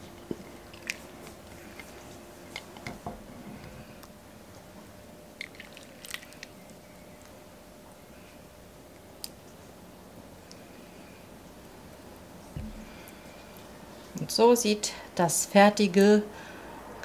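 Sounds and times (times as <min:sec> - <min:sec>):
soup splashing and pouring: 0:05.4 - 0:06.5.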